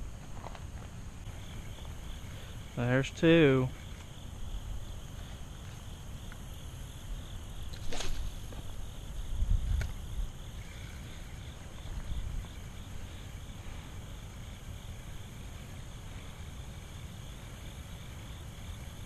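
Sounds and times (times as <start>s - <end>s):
insects chirping: 0.0s - 19.0s
low rumble on microphone: 6.9s - 17.8s.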